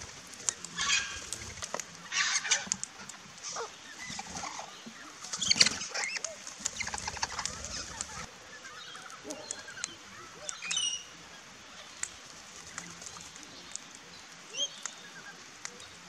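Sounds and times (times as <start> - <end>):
parrots screeching: 0.8 - 1.2, 2.1 - 2.8
whistled bird chirps and clicks: 5.3 - 11.1, 11.8 - 16.0.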